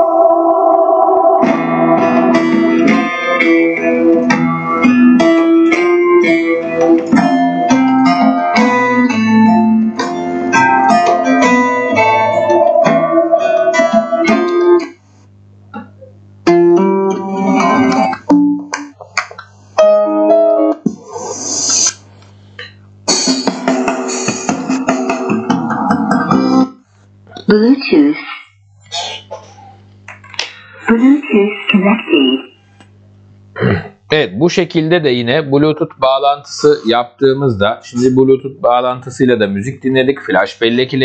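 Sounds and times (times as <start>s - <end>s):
plucked guitar music from speaker: 0.0s - 15.0s, 15.7s - 20.8s.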